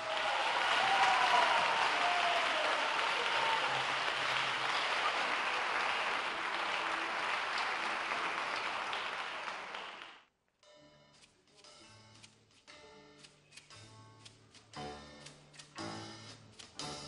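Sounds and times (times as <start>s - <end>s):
audience applauding: 0.0s - 10.3s.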